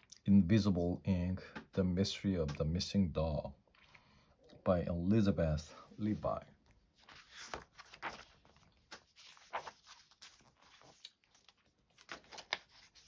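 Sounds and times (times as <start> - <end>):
book pages rustling: 6.0 - 13.0.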